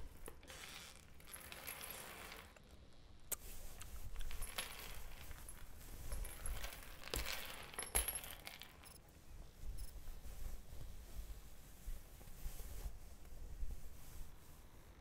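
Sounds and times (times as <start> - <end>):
metal chain clinking on wooden floor: 0.0 - 2.6, 4.1 - 9.0.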